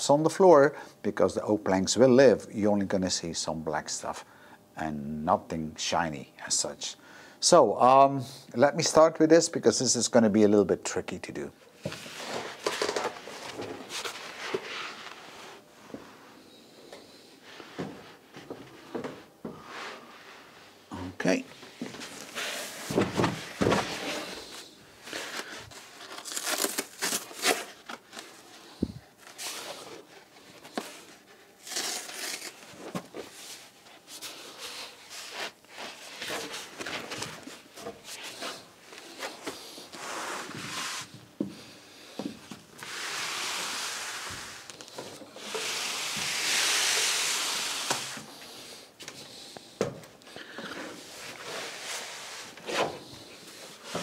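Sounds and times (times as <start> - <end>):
roofing membrane crinkling: 21.9 - 28.6.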